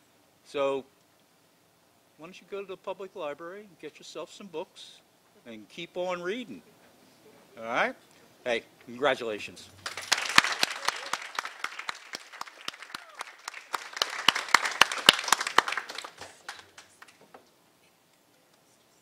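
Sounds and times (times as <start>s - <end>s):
audience applauding: 9.8s - 17.2s.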